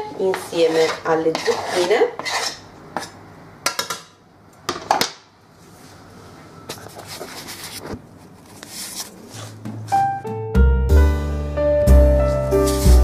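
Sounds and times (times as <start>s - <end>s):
knife scraping into frying pan: 0.2s - 3.2s, 12.4s - 13.0s.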